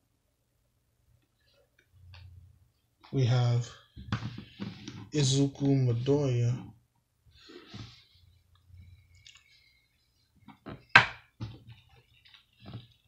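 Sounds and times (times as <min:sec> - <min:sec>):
faint plastic rustles: 0:11.6 - 0:13.0.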